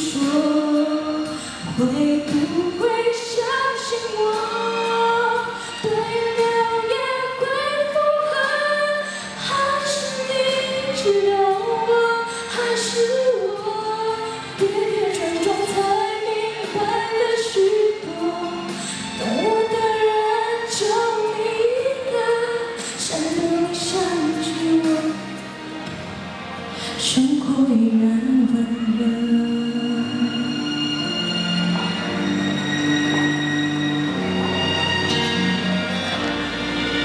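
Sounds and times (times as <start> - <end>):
woman singing pop ballad: 0.0 - 25.4, 26.8 - 30.7
backing track: 0.0 - 37.0.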